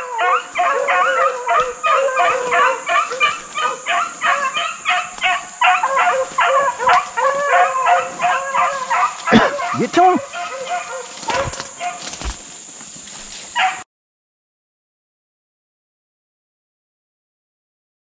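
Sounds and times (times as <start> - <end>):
hounds baying: 0.0 - 12.3, 13.6 - 13.8.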